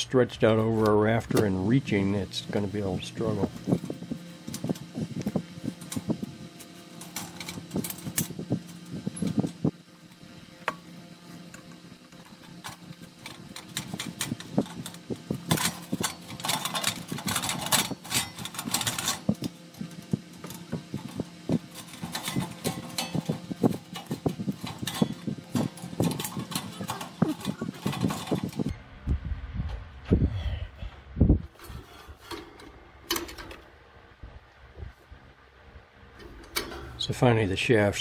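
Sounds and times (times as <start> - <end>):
scraping and rustling: 11.0 - 28.7.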